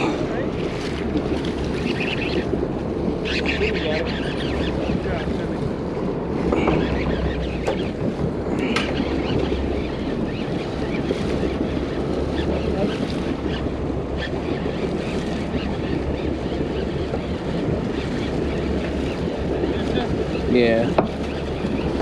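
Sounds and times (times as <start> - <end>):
water sloshing against hull: 0.0 - 22.0
wind on microphone: 0.0 - 22.0
low drone: 5.8 - 9.8.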